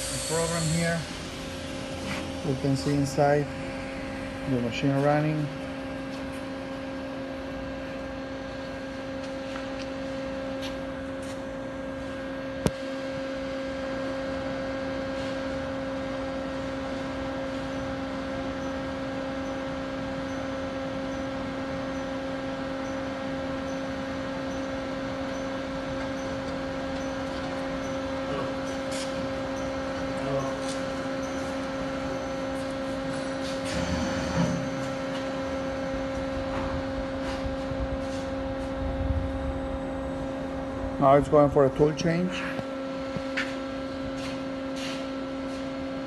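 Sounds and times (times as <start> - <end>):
lathe humming: 0.0 - 9.1.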